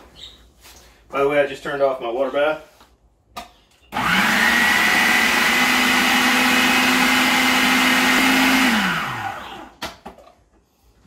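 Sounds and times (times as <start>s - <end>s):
food processor motor whining: 3.9s - 9.8s.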